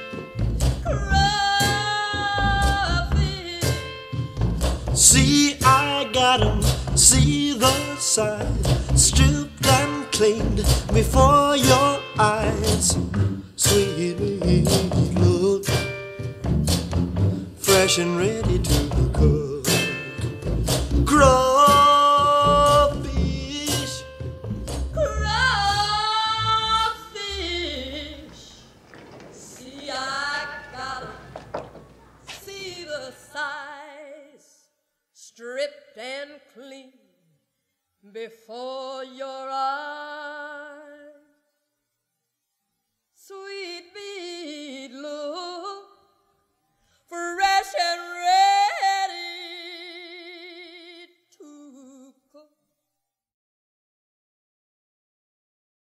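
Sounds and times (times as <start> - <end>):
band accompaniment: 0.0 - 27.7
woman singing: 0.8 - 4.1, 25.0 - 28.6, 29.4 - 31.7, 32.3 - 37.1, 38.1 - 41.3, 43.2 - 46.0, 47.1 - 52.5.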